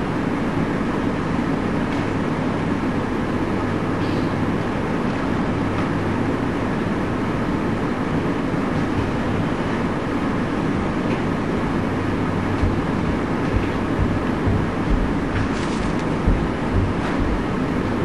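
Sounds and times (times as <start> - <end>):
low rumbling noise: 10.7 - 18.0
faint thumps: 12.5 - 17.5.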